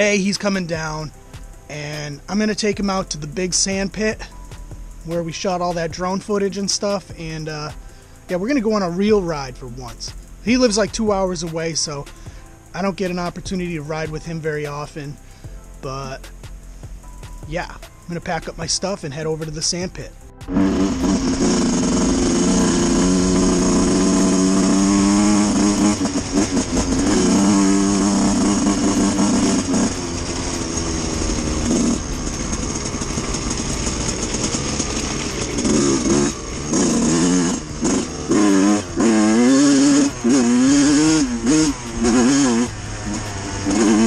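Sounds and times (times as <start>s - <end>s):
dirt bike engine revving: 17.6s - 44.0s.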